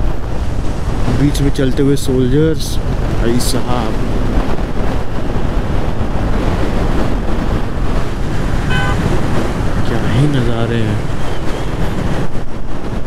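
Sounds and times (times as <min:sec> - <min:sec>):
motorcycle engine rumble: 0:00.0 - 0:13.0
wind noise on microphone: 0:00.0 - 0:13.0
brief steady tone: 0:08.7 - 0:09.0.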